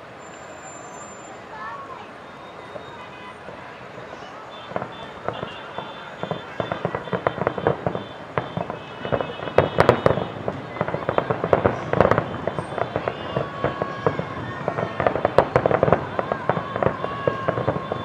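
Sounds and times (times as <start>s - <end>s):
fireworks bangs and pops: 4.1s - 18.0s.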